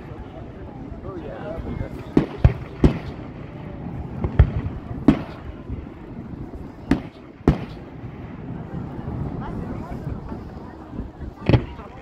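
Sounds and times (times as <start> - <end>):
firework shells bursting: 2.1 - 5.7.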